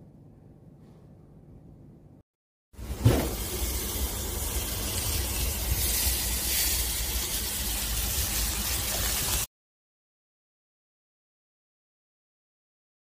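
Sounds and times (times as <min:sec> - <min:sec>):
chicken sizzling in grill pan: 0:02.8 - 0:09.5.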